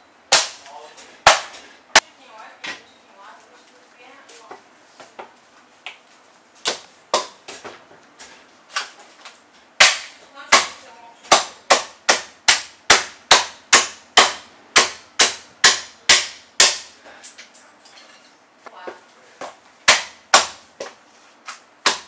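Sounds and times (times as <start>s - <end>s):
cleaver chopping on wooden block: 0.3s - 0.6s, 1.3s - 1.6s, 9.8s - 10.7s, 11.3s - 16.9s, 19.9s - 20.9s.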